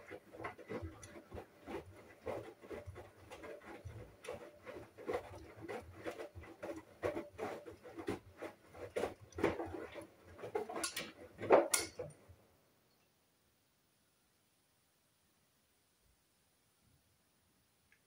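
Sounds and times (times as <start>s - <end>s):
washing machine drum tumbling: 0.0s - 12.3s.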